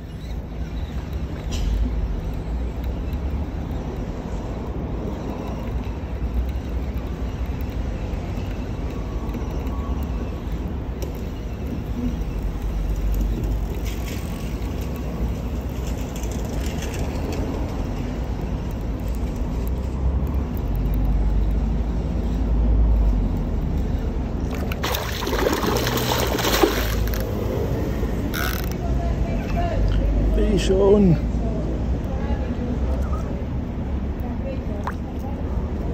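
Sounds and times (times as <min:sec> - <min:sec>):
fish splashing in water: 0:24.5 - 0:27.5.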